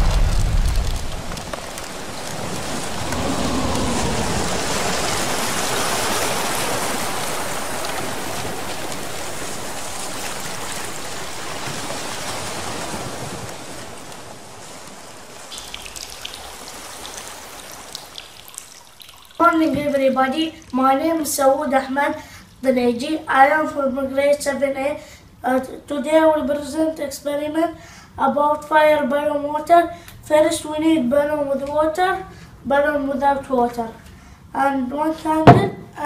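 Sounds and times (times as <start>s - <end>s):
low rumble: 0.0s - 5.8s
rushing spraying water hiss: 0.0s - 18.5s.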